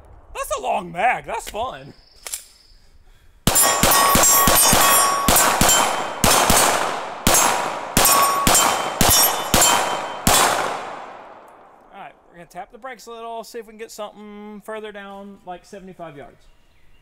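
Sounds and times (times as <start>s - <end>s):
steel targets ringing: 3.5s - 10.7s
pistol shots: 3.5s - 11.8s.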